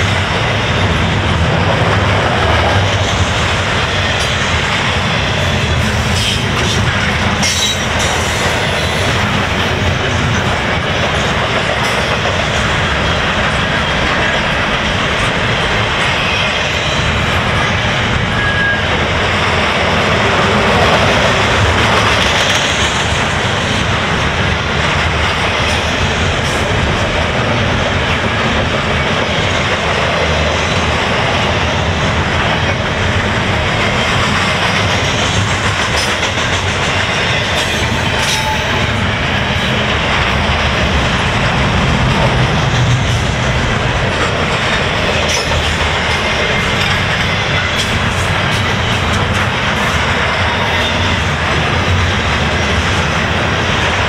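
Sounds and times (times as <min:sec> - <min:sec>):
freight train rolling past: 0:00.0 - 0:54.0.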